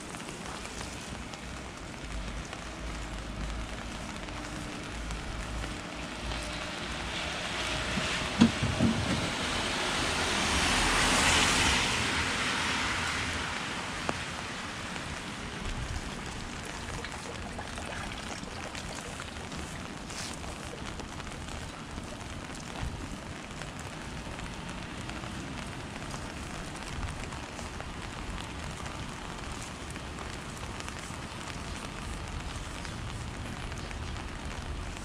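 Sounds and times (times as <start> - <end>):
steady rain falling: 0.0 - 35.0
tyres hissing on wet road: 0.0 - 35.0.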